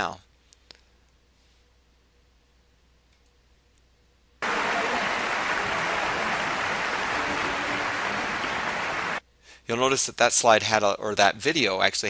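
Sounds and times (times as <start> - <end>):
audience applause: 4.4 - 9.2.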